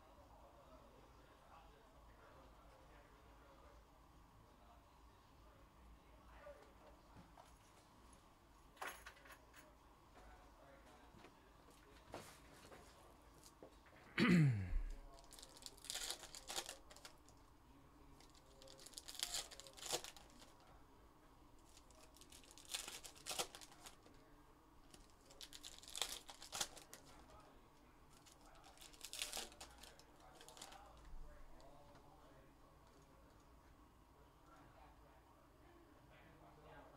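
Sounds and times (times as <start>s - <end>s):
foil packs tearing and crinkling: 15.2s - 17.2s, 18.3s - 20.5s, 21.7s - 24.1s, 24.9s - 27.2s, 28.2s - 30.9s.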